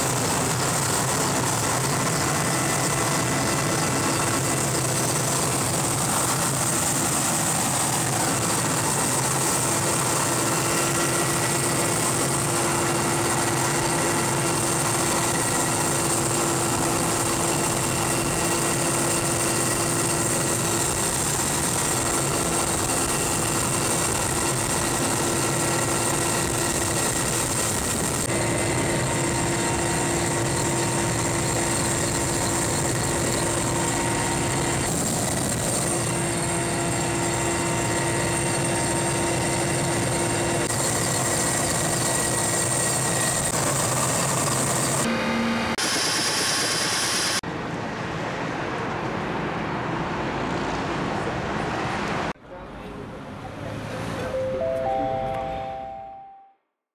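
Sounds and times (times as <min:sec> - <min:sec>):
helicopter cabin engine noise: 0:00.0 - 0:47.4
high whine: 0:54.3 - 0:56.5.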